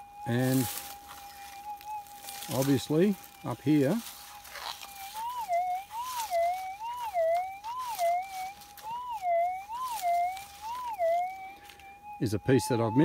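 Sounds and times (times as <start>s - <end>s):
metal detector warbling tone: 0.0s - 13.0s.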